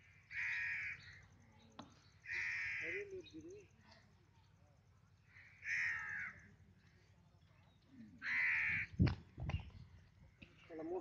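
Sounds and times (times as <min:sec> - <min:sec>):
crow cawing: 0:00.0 - 0:01.2, 0:02.2 - 0:03.2, 0:05.3 - 0:06.5, 0:08.2 - 0:09.0.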